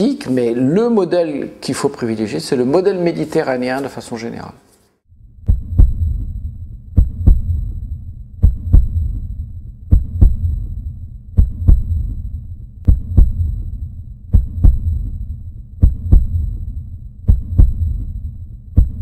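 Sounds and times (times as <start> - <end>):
low hum: 5.1 - 19.0
heartbeat thumps: 5.4 - 19.0.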